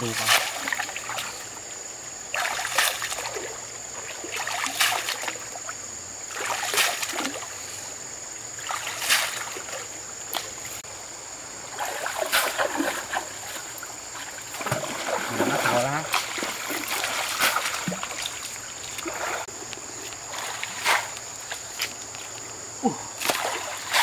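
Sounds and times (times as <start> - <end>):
river water splashing: 0.0 - 24.0.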